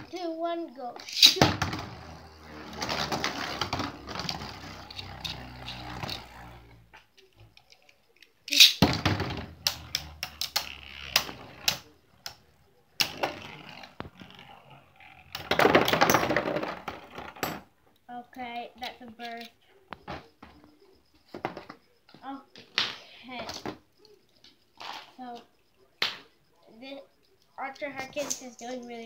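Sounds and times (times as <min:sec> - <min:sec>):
spinning tops clattering: 0:01.0 - 0:06.2.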